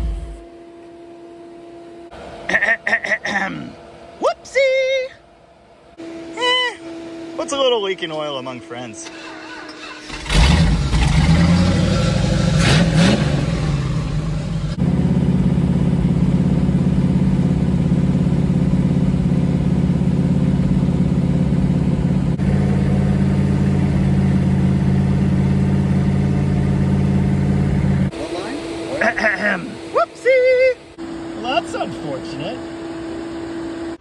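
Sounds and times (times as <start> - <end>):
engine running rough and loud: 0.0 - 0.5, 9.0 - 32.6
ignition key starting engine: 9.0 - 11.7.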